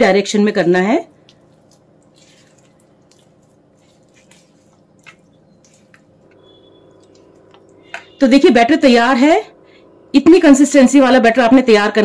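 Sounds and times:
low steady hum: 0:00.0 - 0:12.0
batter being stirred in bowl: 0:00.6 - 0:08.4.

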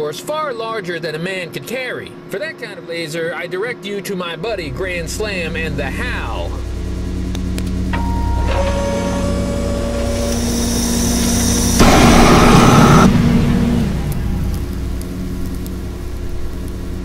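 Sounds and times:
laser charging whine: 0:04.5 - 0:17.0
laser blast and explosion: 0:09.6 - 0:15.0.

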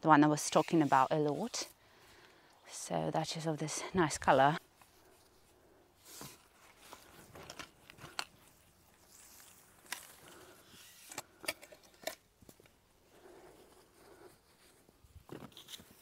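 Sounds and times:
dry stalks rustling: 0:04.6 - 0:11.2
hands digging dry soil: 0:04.8 - 0:11.1.

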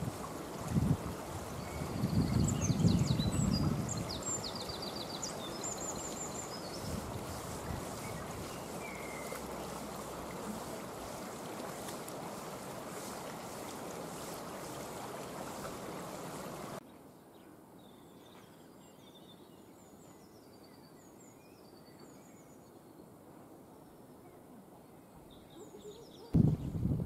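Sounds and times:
river water rushing: 0:00.0 - 0:16.8
small birds chirping: 0:01.1 - 0:12.0.

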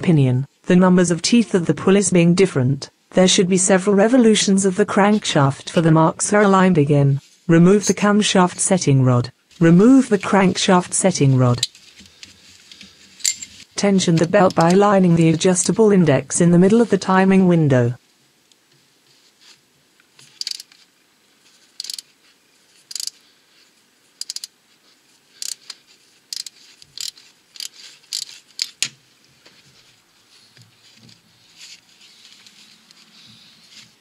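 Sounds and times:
rustling of handling: 0:11.6 - 0:15.4, 0:18.6 - 0:34.0
metallic clicks and taps of tools: 0:22.9 - 0:23.2, 0:24.2 - 0:24.5.

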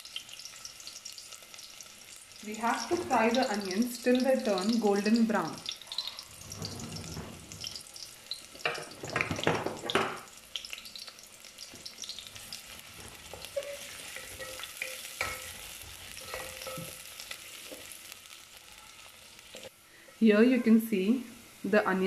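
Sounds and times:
onions sizzling in oil: 0:00.0 - 0:22.0
spatula scraping metal pot: 0:13.0 - 0:16.9.

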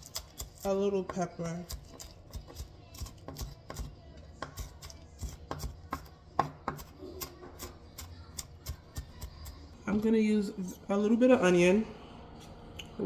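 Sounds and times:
knife chopping on wooden board: 0:00.0 - 0:07.7.

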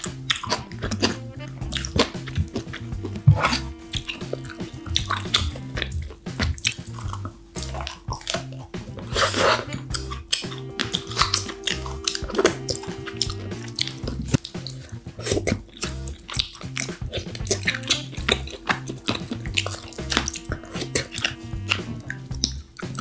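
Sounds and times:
background music with bass line: 0:00.0 - 0:23.0
wet clicky eating sounds: 0:00.0 - 0:23.0.

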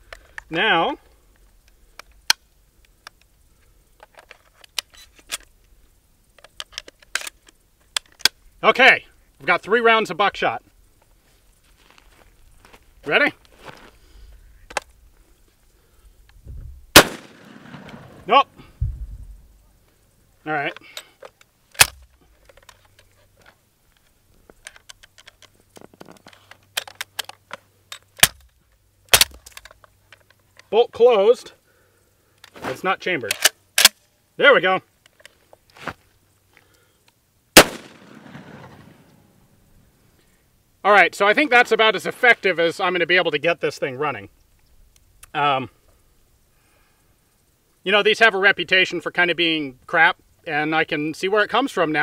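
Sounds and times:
shotgun action clicking and rattling: 0:04.0 - 0:05.5, 0:06.3 - 0:08.4, 0:17.0 - 0:18.3, 0:20.7 - 0:30.7, 0:33.2 - 0:34.1, 0:37.6 - 0:38.9
shotgun shells clicking into magazine: 0:20.7 - 0:23.1, 0:24.0 - 0:28.5.

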